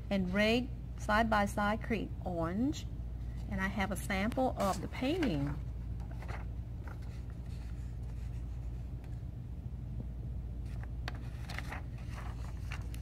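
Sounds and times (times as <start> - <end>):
low room hum: 0.0 - 13.0
paper rustling: 4.6 - 9.2, 10.6 - 13.0.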